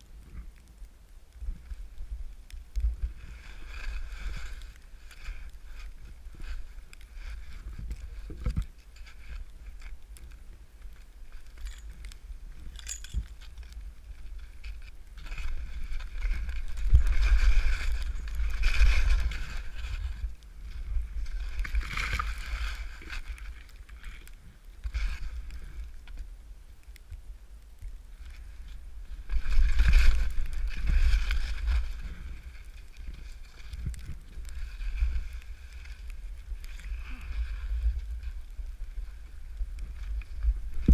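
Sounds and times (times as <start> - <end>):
wind on microphone: 0.0 - 40.9
skis swishing through snow: 2.8 - 9.9, 13.4 - 25.8, 28.4 - 40.9.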